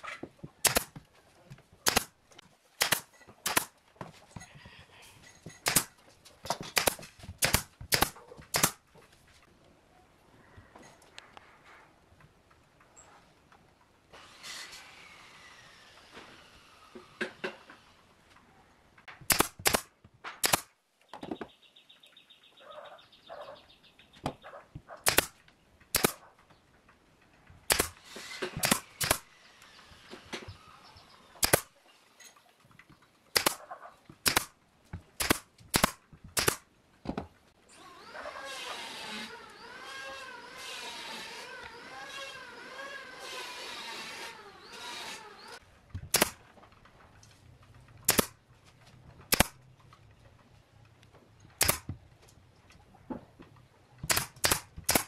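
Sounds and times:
nail gun firing: 0.6 - 1.0, 1.8 - 2.2, 2.8 - 3.8, 5.6 - 8.8, 19.2 - 20.7, 25.0 - 26.2, 27.7 - 29.4, 31.4 - 31.7, 33.4 - 33.6, 34.2 - 34.6, 35.2 - 36.6, 43.5 - 46.4, 48.0 - 48.4, 49.3 - 49.6, 51.6 - 52.0, 54.0 - 55.0.

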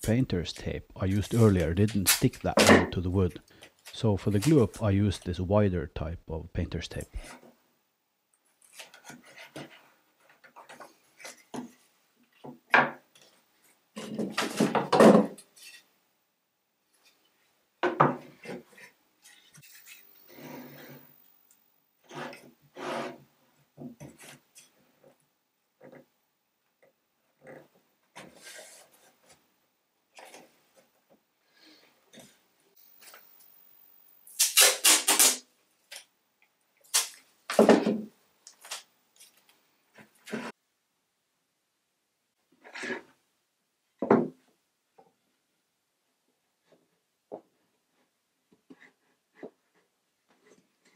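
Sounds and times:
tape tearing: 1.3 - 2.4, 34.3 - 36.1, 36.9 - 37.3, 38.5 - 39.4
wood strips scraping: 18.4 - 21.1, 22.0 - 23.2
tape pulled off roll: 34.3 - 35.4.

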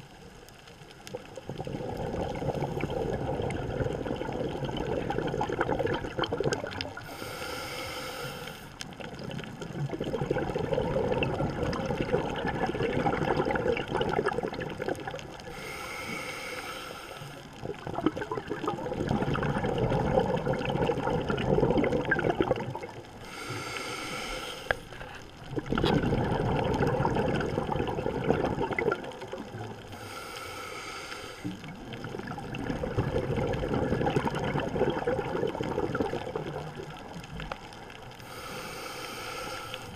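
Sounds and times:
bubbling exhalations: 1.1 - 7.7, 9.0 - 16.3, 17.5 - 30.3, 31.4 - 37.2
regulator hissing inhalations: 7.0 - 8.8, 15.5 - 17.4, 23.2 - 25.1, 29.9 - 31.6, 38.2 - 39.9.

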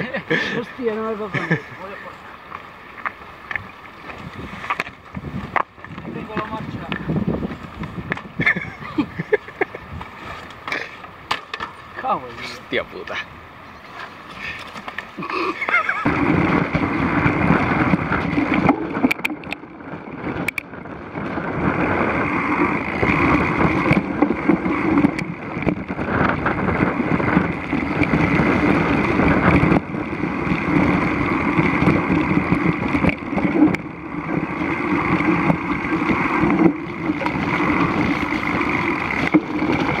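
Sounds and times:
bike tyres rolling: 0.0 - 40.0
wind rushing over microphone: 3.6 - 10.5, 15.2 - 40.0
bike frame rattling: 13.9 - 40.0.

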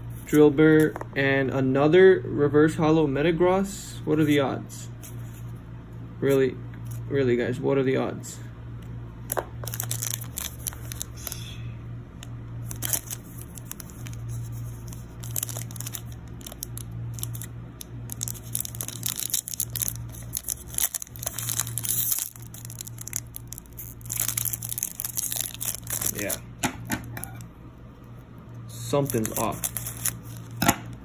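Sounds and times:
foil wrapper crinkling: 9.3 - 11.4, 12.6 - 26.4, 28.8 - 31.0.

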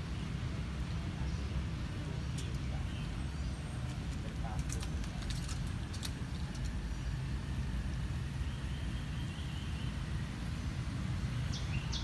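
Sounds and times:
outdoor background rumble: 0.0 - 12.0.

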